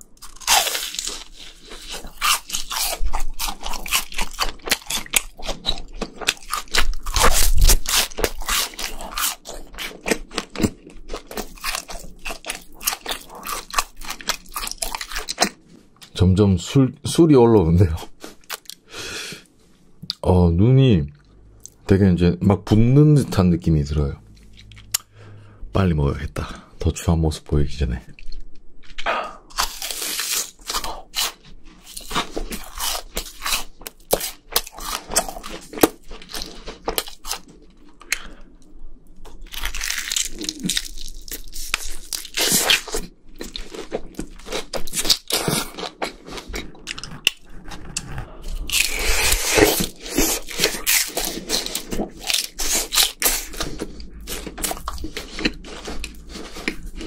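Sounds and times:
crunching fried chicken: 0.0s - 16.2s, 28.1s - 38.5s, 39.2s - 57.0s
chewing: 39.2s - 57.0s.

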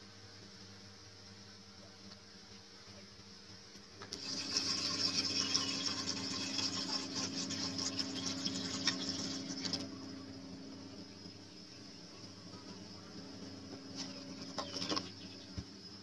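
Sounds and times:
water pouring into metal pot: 4.1s - 9.9s.

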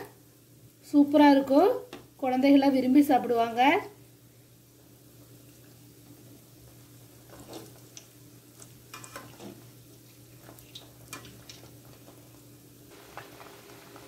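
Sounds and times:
food deep-frying in oil: 0.0s - 14.0s
metal ladle scraping a pan: 8.9s - 9.6s.

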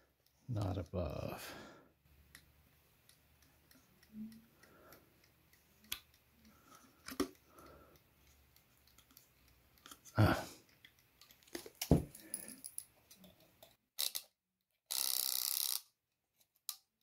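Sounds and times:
small clicks of plastic gears: 13.1s - 14.3s, 14.9s - 16.0s.

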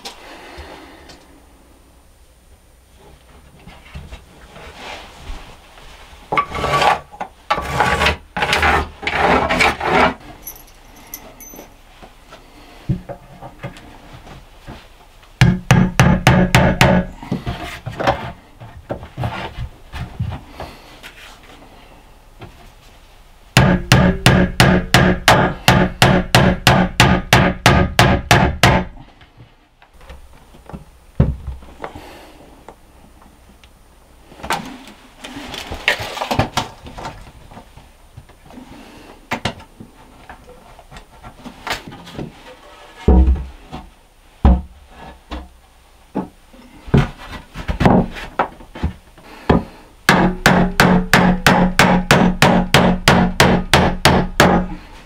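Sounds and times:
knocking and scraping on wood: 6.3s - 10.2s, 12.9s - 20.8s, 39.4s - 45.5s, 46.2s - 49.8s.

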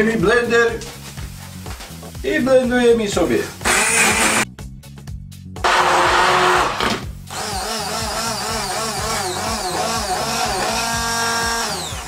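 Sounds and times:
background music: 0.0s - 12.0s
power tool motor whine: 3.6s - 4.4s, 5.6s - 12.0s.

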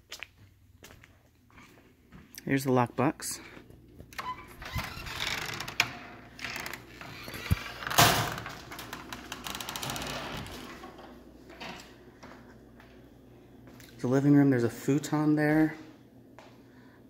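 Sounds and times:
door banging shut: 7.5s - 8.9s.

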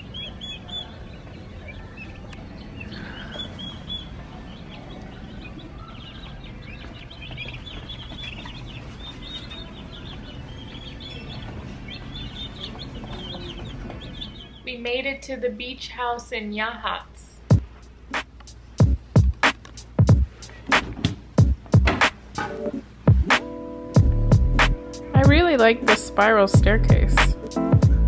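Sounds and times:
ducklings and chicks peeping: 0.0s - 14.8s
low steady background hum: 0.0s - 23.1s.

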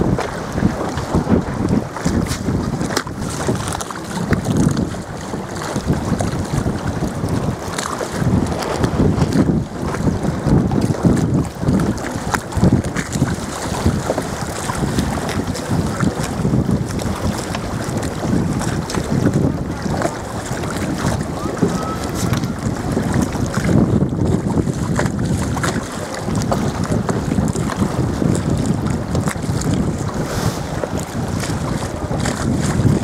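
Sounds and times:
water lapping and splashing: 0.0s - 33.0s
wind buffeting microphone: 0.0s - 33.0s.

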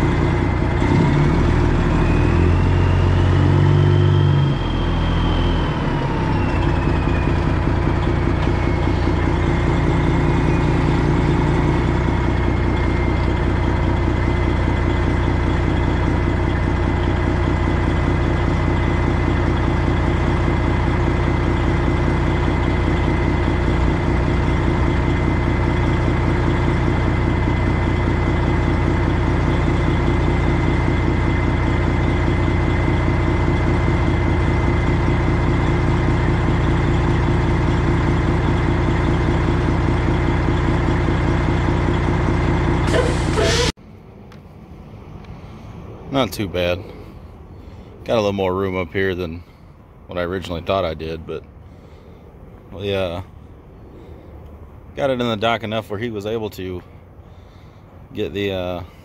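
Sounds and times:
diesel truck engine revving: 0.0s - 43.8s
high engine whine: 0.0s - 59.0s.

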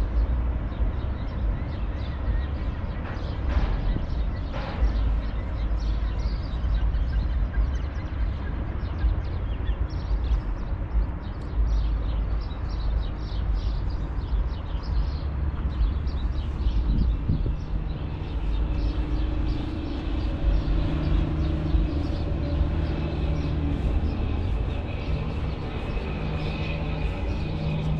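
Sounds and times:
engine drone: 0.0s - 27.9s
traffic rumble: 0.0s - 27.9s.

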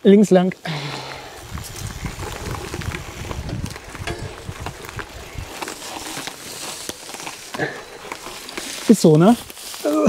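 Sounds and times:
tyres rumbling on trail: 0.7s - 10.0s
bike clicks and rattles: 1.4s - 9.8s.

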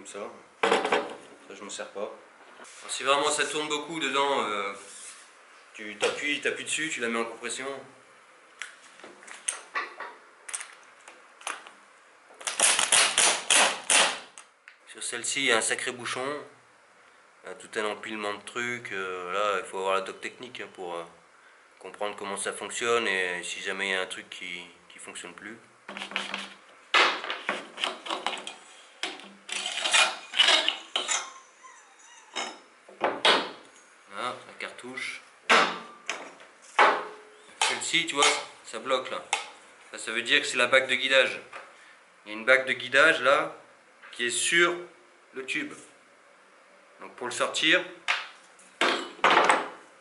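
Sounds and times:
metallic knocks and scraping: 27.2s - 31.4s.

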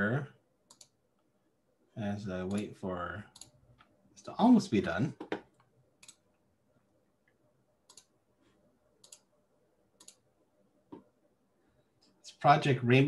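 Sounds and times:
computer clicks: 0.7s - 1.0s, 2.5s - 2.7s, 3.3s - 3.9s, 5.2s - 6.3s, 7.8s - 8.2s, 9.0s - 9.3s, 10.0s - 10.2s.

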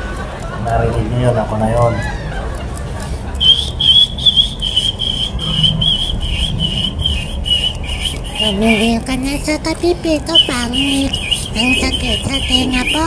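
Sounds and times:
fledgling sparrows cheeping: 3.4s - 13.0s.

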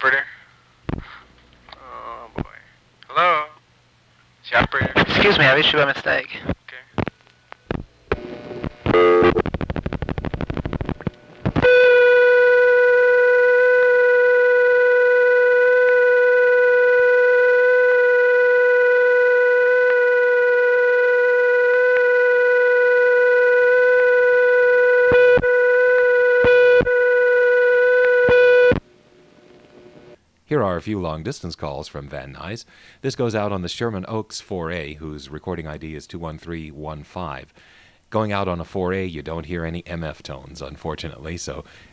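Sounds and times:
pulse clicks: 7.0s - 29.8s
steady buzzing tone: 7.6s - 30.2s.

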